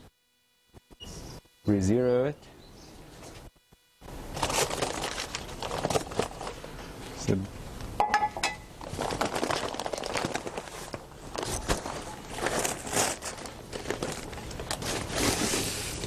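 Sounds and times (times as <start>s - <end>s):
paper bag crinkling: 4.3s - 6.6s, 8.8s - 16.0s
powder scooping and crunching: 8.8s - 16.0s.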